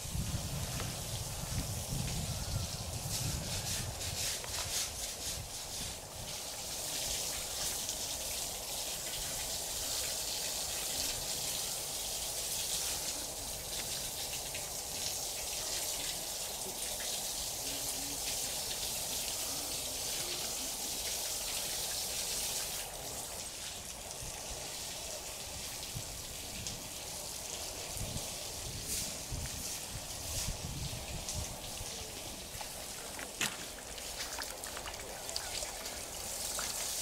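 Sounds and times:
running water hissing: 0.0 - 37.0.

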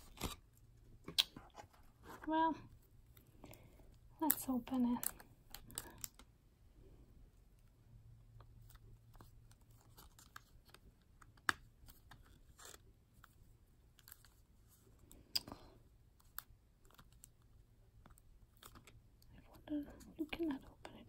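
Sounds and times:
card box wrapper crinkling: 0.0 - 0.5.

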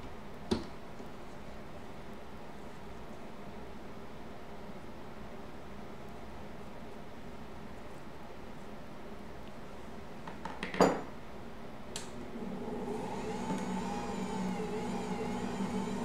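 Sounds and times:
stand mixer kneading dough: 12.2 - 16.0.

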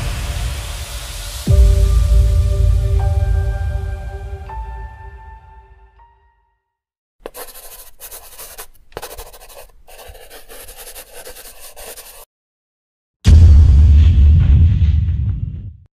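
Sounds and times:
loud deep boom: 0.0 - 4.8, 13.3 - 15.8
pen scratching on paper: 7.2 - 12.3.

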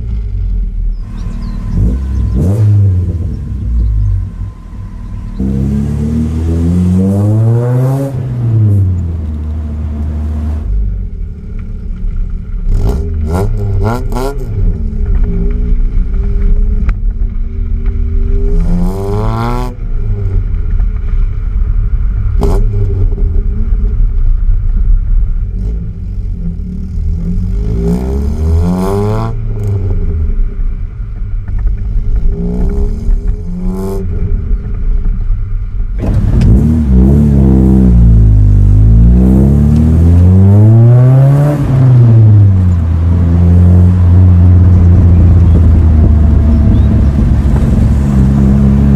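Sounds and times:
car engine revving: 0.0 - 48.9
wind rushing over microphone: 41.7 - 48.9.

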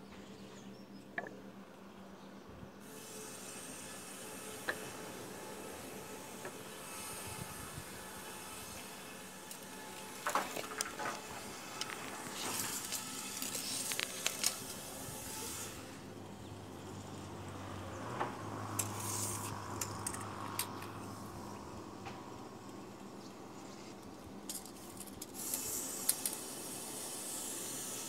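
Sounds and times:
tape measure rustling and scraping: 8.5 - 15.9, 18.7 - 21.0, 23.6 - 27.8
tape measure clicks: 11.8 - 14.8, 18.7 - 20.9, 24.5 - 26.5.

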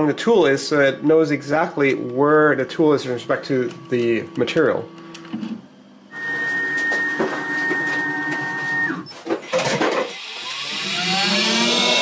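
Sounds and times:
mill motors whining: 0.0 - 12.0
motor spinning up: 6.1 - 12.0.

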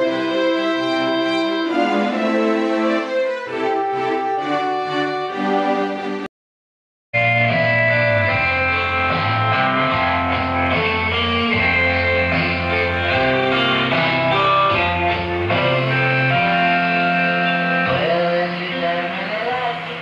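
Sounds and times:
guitar music on radio loudspeaker: 7.2 - 20.0.

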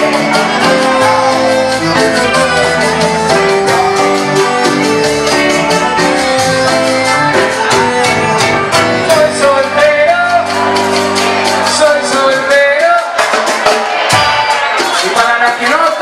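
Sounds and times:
person singing: 0.0 - 13.4
live band music through a pa: 0.0 - 16.0
drum and cymbal hits: 10.3 - 15.9.

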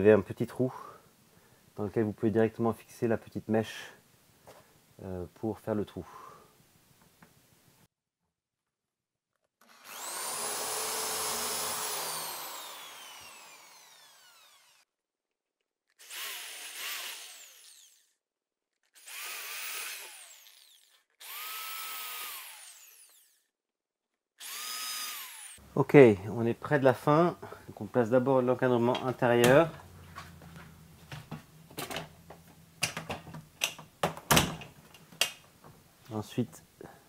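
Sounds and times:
electric drill boring wood: 9.6 - 14.9, 15.9 - 18.2, 18.8 - 23.5, 24.4 - 25.6.

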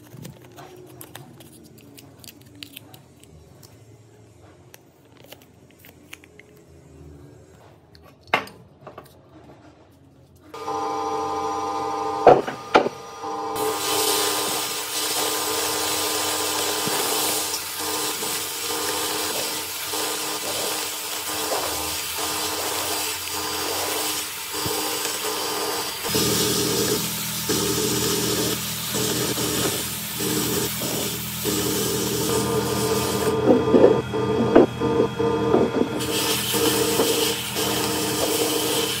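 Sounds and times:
machine hum: 10.6 - 39.0
sandblasting hiss: 13.6 - 33.3, 36.0 - 39.0.

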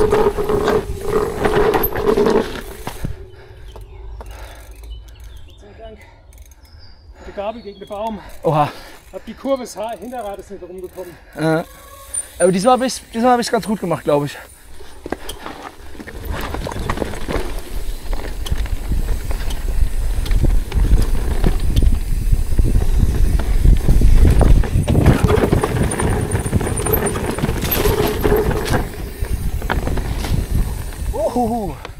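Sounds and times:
bike clattering over rocks: 0.0 - 3.1, 14.7 - 31.2
wind on microphone: 18.0 - 31.9.

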